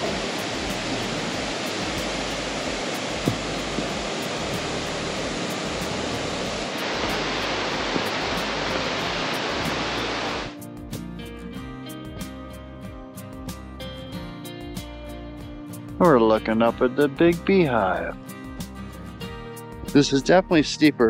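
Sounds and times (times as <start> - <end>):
mountain creek rushing over rocks: 0.0 - 10.5.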